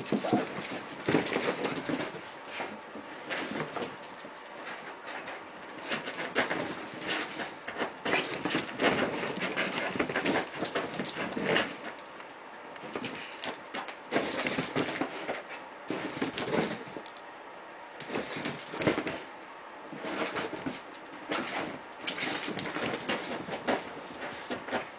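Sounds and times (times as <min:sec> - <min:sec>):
paws scuffling on a blanket: 0:00.0 - 0:12.0, 0:19.9 - 0:24.9.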